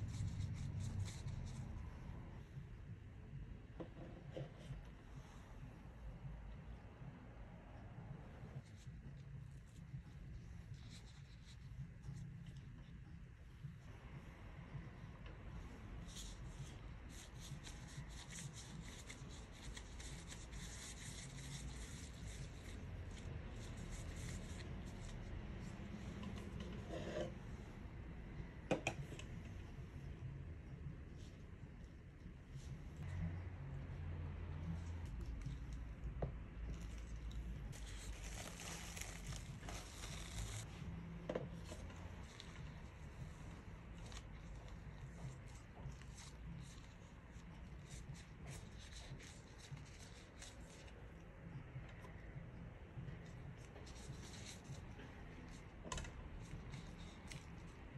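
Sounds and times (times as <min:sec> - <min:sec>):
plastic gloves rustling: 0:15.8 - 0:26.6, 0:34.6 - 0:51.0
cling film crinkling: 0:36.9 - 0:40.7.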